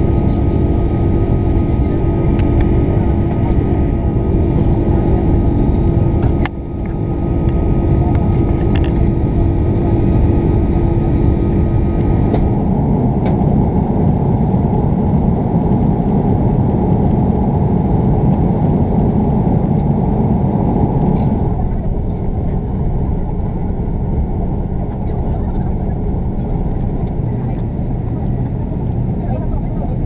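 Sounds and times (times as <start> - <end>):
airplane cabin engine roar: 0.0 - 30.0
steady tones: 20.2 - 29.6.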